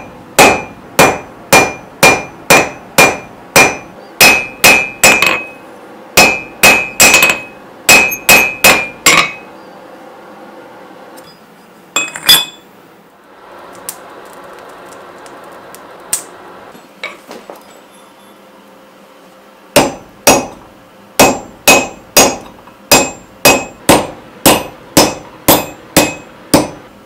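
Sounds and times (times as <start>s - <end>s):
hammer ringing on hot steel: 0.0s - 5.6s, 6.2s - 9.5s, 12.0s - 12.6s, 19.8s - 20.6s, 21.2s - 26.8s.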